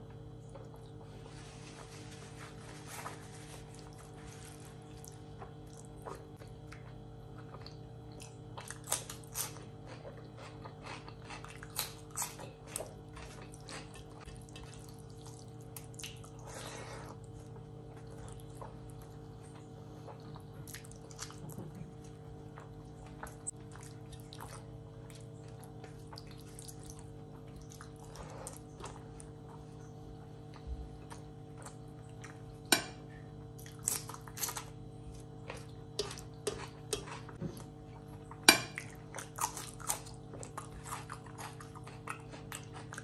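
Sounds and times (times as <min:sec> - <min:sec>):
chewing: 0:02.8 - 0:43.0.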